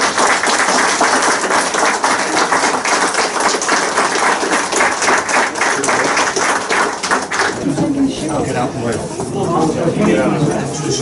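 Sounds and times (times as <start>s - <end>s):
crowd applauding: 0.0s - 7.9s.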